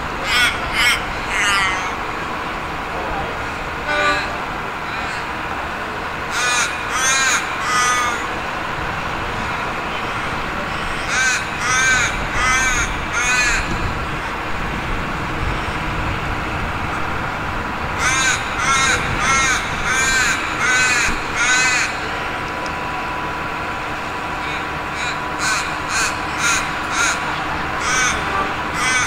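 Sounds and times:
crow cawing: 6.3s - 8.3s, 11.0s - 13.7s, 18.0s - 22.0s, 24.5s - 29.0s.

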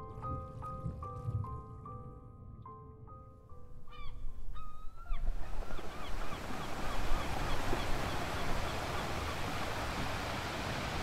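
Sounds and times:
ocean surf: 5.4s - 11.0s.

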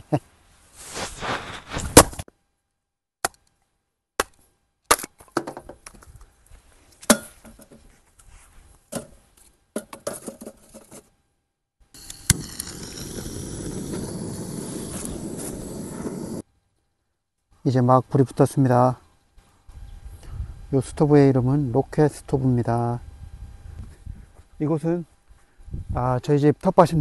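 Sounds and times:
hatchet chopping wood: 3.2s - 3.4s, 4.2s - 5.7s
gas torch hissing: 12.0s - 16.4s.

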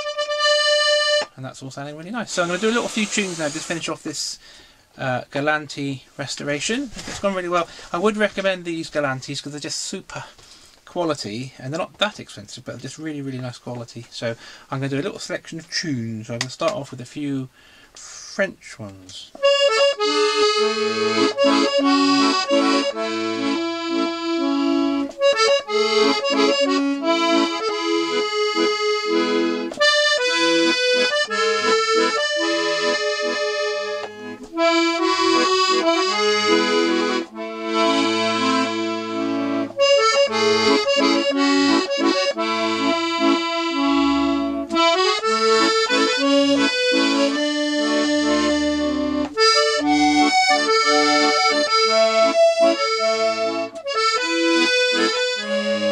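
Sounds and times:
accordion playing melody: 0.0s - 4.6s, 19.3s - 55.9s.

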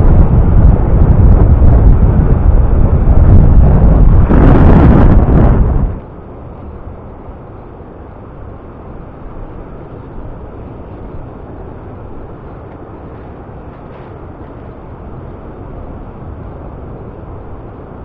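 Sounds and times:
wind rumbling: 0.0s - 18.0s.

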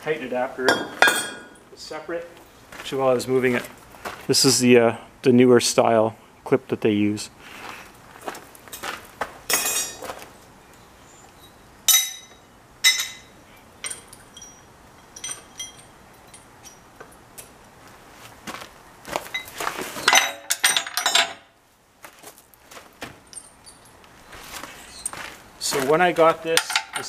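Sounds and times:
steel parts clanking: 0.7s - 1.6s, 11.9s - 16.9s, 19.3s - 21.4s, 26.3s - 27.0s
metal parts clattering on steel: 19.3s - 21.4s, 26.5s - 27.0s.

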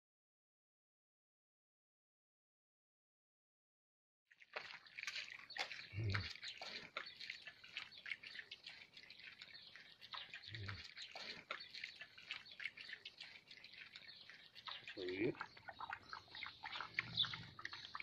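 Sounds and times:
puppies lapping and chewing: 4.4s - 18.0s.

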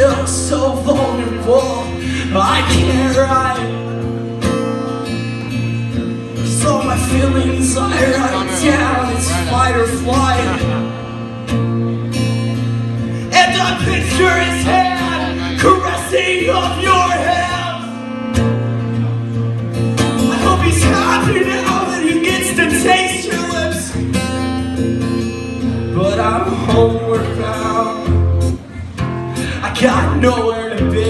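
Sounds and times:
acoustic guitars playing: 0.0s - 31.0s
person singing: 6.6s - 11.0s, 13.3s - 18.0s.

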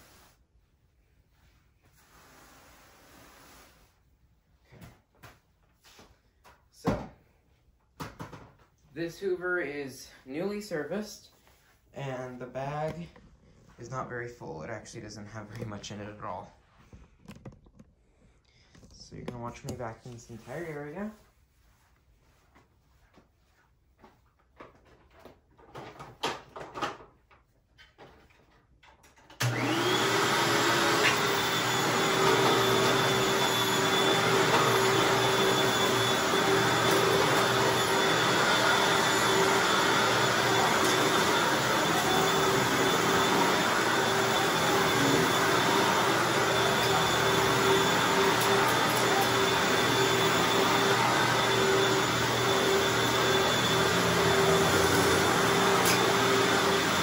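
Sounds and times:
vacuum cleaner motor whine: 29.4s - 57.0s.

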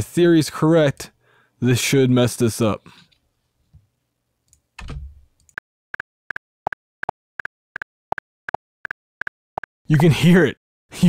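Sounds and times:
doubled click track: 7.8s - 10.1s.

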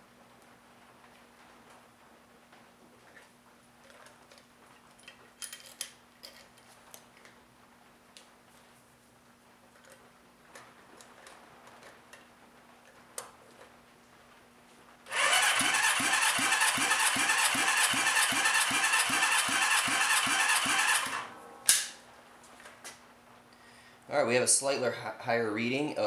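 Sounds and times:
engine cranking whir: 15.1s - 21.4s.

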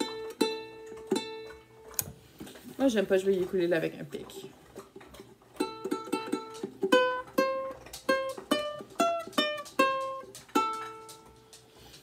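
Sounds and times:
ukulele plucked riff: 0.0s - 2.0s, 5.6s - 11.5s.

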